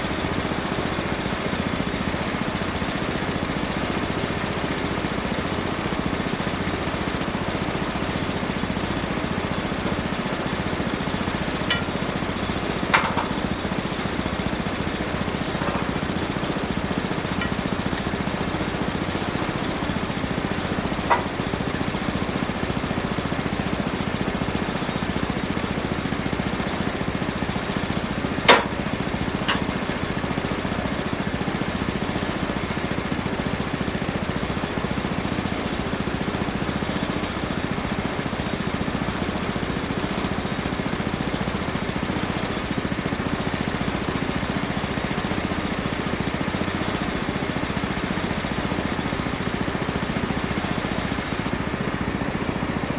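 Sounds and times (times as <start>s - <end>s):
engine idling: 0.0s - 52.9s
sharp metallic clanks: 11.7s - 12.0s, 28.5s - 28.8s.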